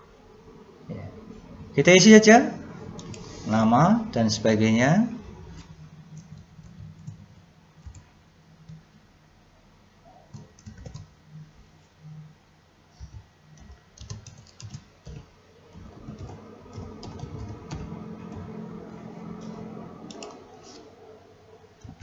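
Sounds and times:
low background hum: 0.0s - 22.0s
keyboard typing: 3.0s - 3.3s, 6.2s - 8.8s, 10.3s - 11.2s, 13.0s - 20.9s.

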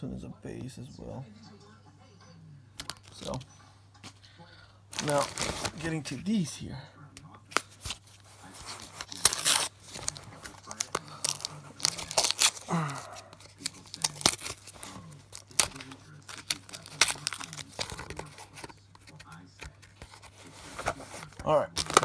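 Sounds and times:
masking tape ripping: 8.7s - 18.4s.

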